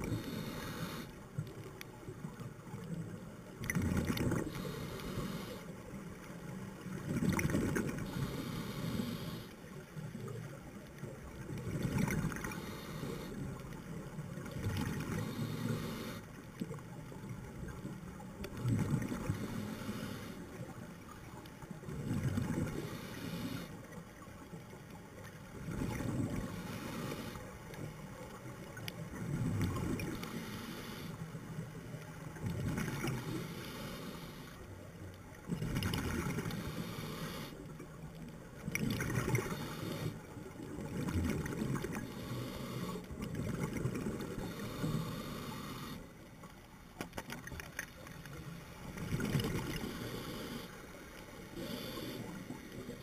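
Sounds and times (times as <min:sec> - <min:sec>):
regulator hiss on inhale: 0:00.0 - 0:01.5, 0:04.4 - 0:05.9, 0:08.0 - 0:09.8, 0:12.2 - 0:13.8, 0:15.0 - 0:16.4, 0:19.2 - 0:20.7, 0:22.6 - 0:23.9, 0:26.3 - 0:27.9, 0:30.0 - 0:31.6, 0:33.0 - 0:34.7, 0:36.3 - 0:37.8, 0:39.3 - 0:40.4, 0:41.9 - 0:43.2, 0:44.2 - 0:46.3, 0:49.6 - 0:53.0.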